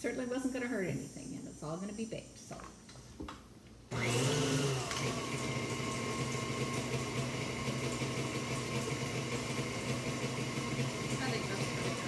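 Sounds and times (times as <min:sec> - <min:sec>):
stand mixer motor humming: 0:03.9 - 0:12.0.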